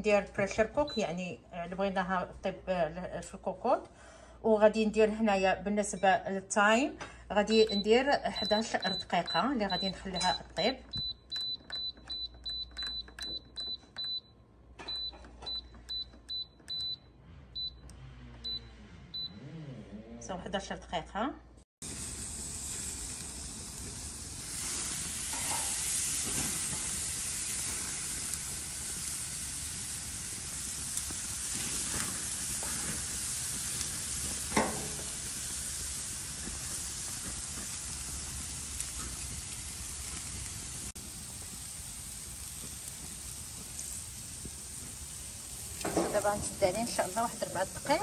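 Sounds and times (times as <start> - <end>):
steaks sizzling in pan: 21.8 - 48.0.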